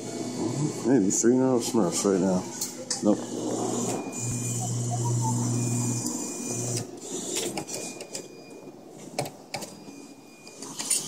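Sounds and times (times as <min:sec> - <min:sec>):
claw machine motor whirring: 0:03.0 - 0:08.2.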